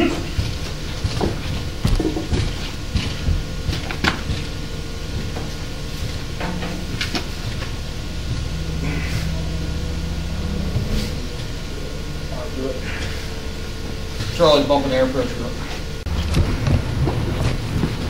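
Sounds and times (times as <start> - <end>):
flywheel knocks and clanks: 0.0 - 11.5
steady low hum: 0.0 - 18.0.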